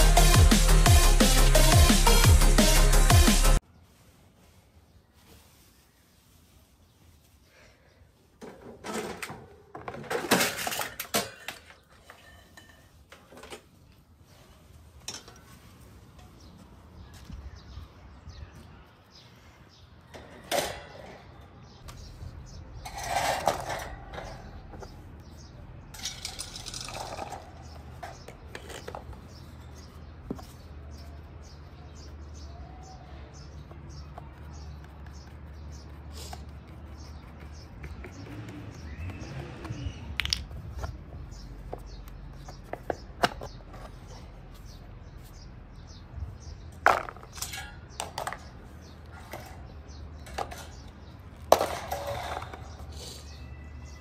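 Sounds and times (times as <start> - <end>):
fan parts clicking and rattling: 8.4 - 13.9, 15.0 - 16.5, 20.1 - 25.0, 25.9 - 29.4, 46.4 - 52.9.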